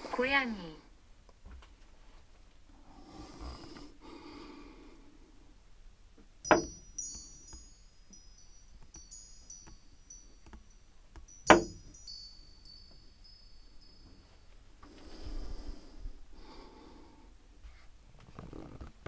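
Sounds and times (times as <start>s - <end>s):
metal wind chime ringing: 6.4s - 14.9s.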